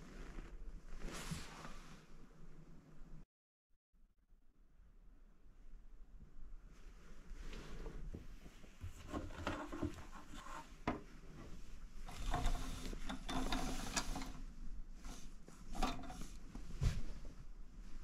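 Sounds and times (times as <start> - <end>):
bedding and clothing rustling: 0.0 - 2.1, 7.2 - 18.0
curtain rings scraping on rod: 11.4 - 16.5.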